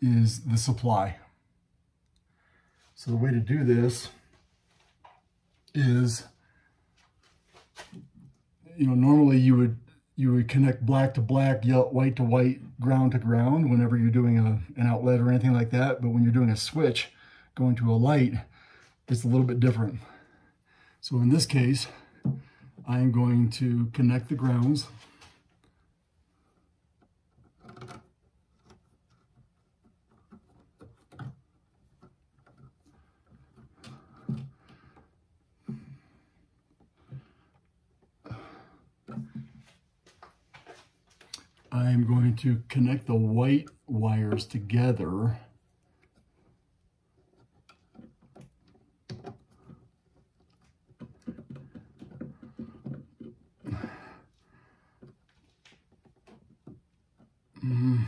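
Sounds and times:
wires scraping and clicking: 24.0 - 57.9.

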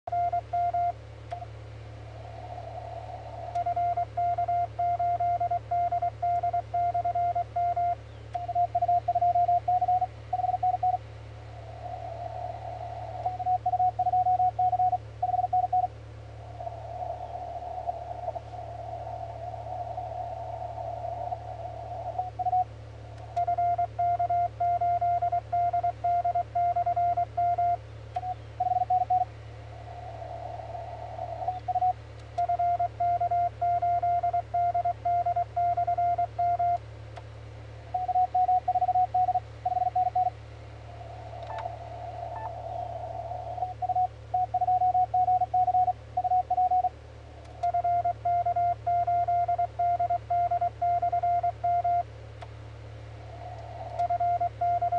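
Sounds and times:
morse code tone: 0.1 - 1.0, 3.6 - 11.0, 13.2 - 15.9, 23.4 - 29.3, 31.4 - 36.8, 38.0 - 40.3, 43.6 - 46.9, 47.7 - 52.0, 54.0 - 54.9
low hum: 0.1 - 54.9
receiver hiss: 0.1 - 54.9.

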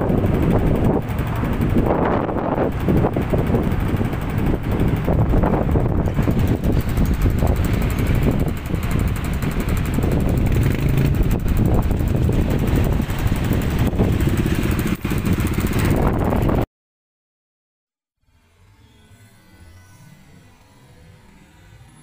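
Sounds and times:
motorcycle engines idling and revving: 0.0 - 16.7.

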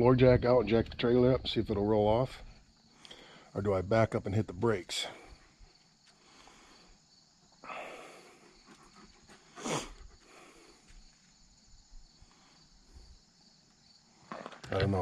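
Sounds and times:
person exhaling: 3.0 - 3.5, 7.6 - 8.5.

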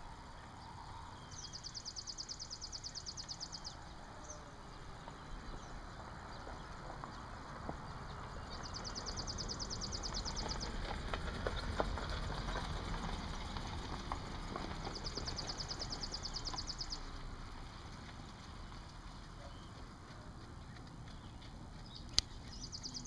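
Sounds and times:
horse hoofbeats at a trot: 5.1 - 23.0.

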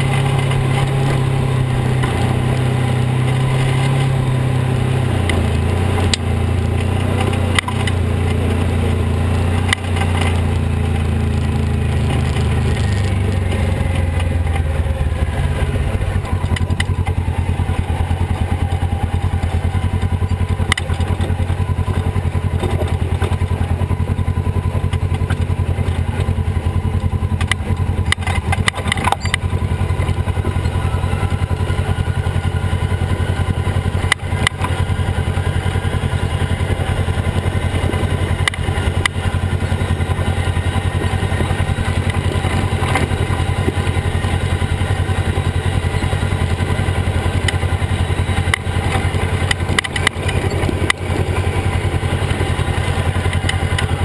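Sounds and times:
knocks and clatter over rocks: 0.0 - 54.0
off-road vehicle engine running: 0.0 - 54.0.

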